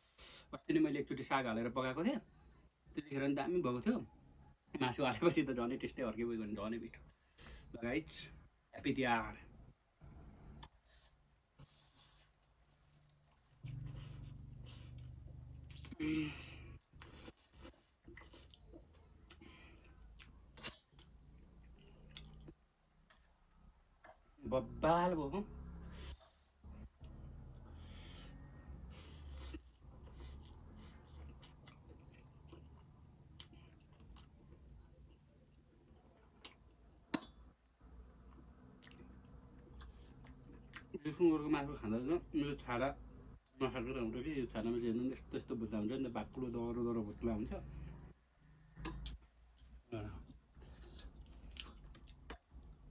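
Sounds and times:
crickets trilling: 0.0 - 52.9
man saying mm: 15.9 - 16.6.

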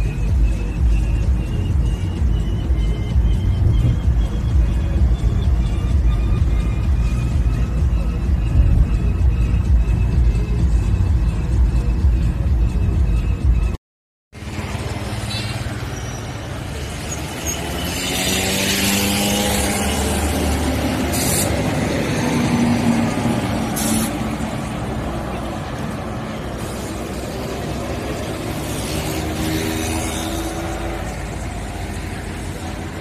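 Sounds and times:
traffic engines passing: 0.0 - 33.0
short hisses: 23.8 - 24.2.

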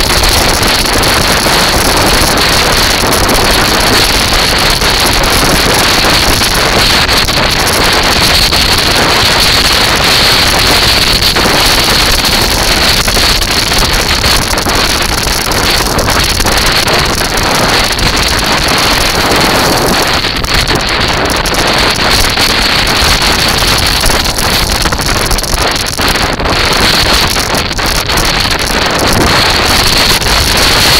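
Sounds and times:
wheels rolling over shingle: 0.0 - 30.9
wind buffeting microphone: 0.0 - 30.9.

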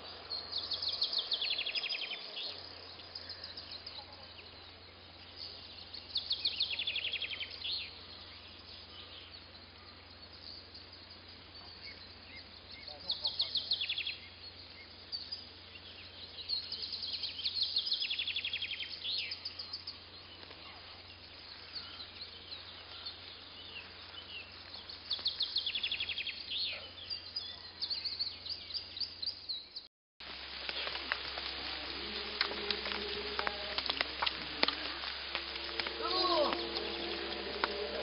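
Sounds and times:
songbirds chirping and trilling: 0.0 - 38.0
steady low hum: 31.0 - 38.0.

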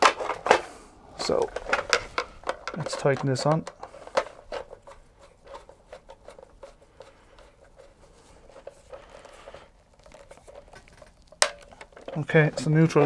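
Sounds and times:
faint rasping: 3.8 - 13.0.

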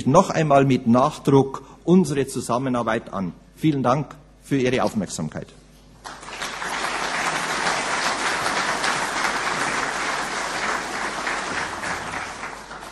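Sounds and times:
audience applauding: 6.0 - 12.9.

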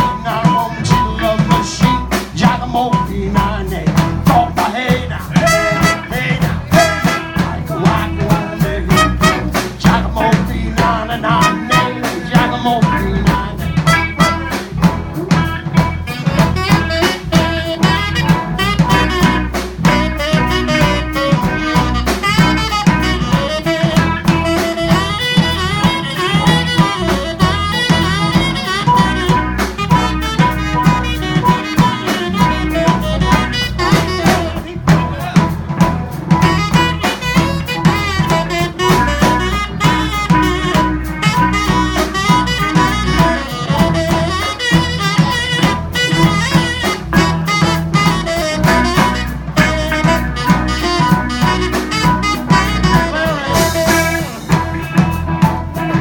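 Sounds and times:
bass: 0.0 - 56.0
drum kit: 0.0 - 56.0
saxophone lead line: 0.0 - 56.0
harmonica: 4.2 - 56.0.

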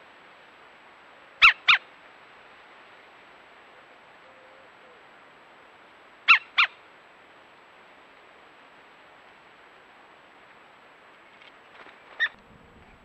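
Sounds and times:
faint camera hiss: 0.0 - 13.0
woodpecker calling: 1.4 - 1.8, 6.3 - 6.8, 12.0 - 13.0.

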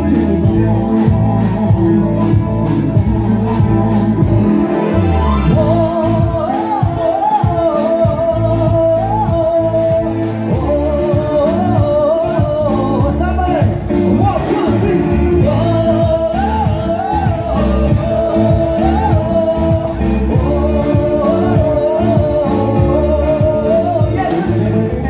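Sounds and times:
live band playing: 0.0 - 25.0
male lead vocal: 0.0 - 25.0.

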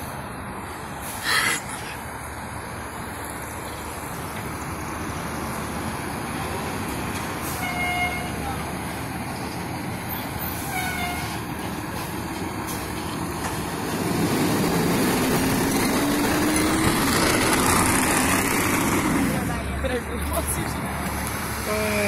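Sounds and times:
fire engine diesel engine accelerating: 11.4 - 22.0.

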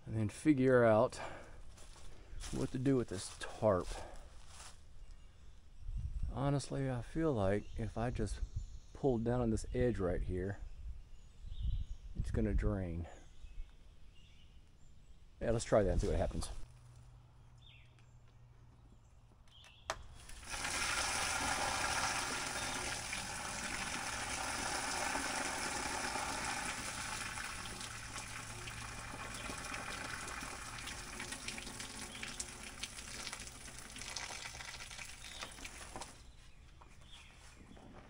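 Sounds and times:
water gushing onto ground: 20.2 - 36.3.

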